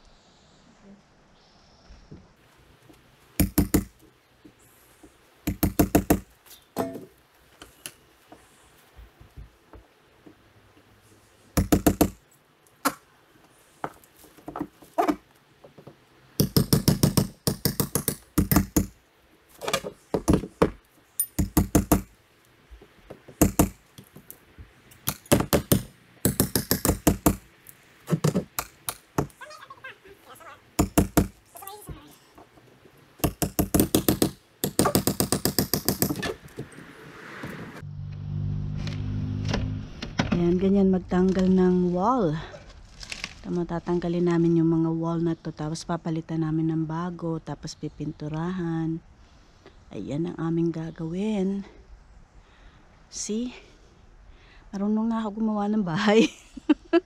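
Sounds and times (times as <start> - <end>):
hammers striking plywood and nails: 3.4 - 4.0, 5.4 - 7.0, 11.6 - 12.2, 16.4 - 19.0, 20.1 - 22.1, 23.1 - 23.8, 25.0 - 27.5, 28.1 - 29.4, 30.8 - 31.4, 33.2 - 36.4.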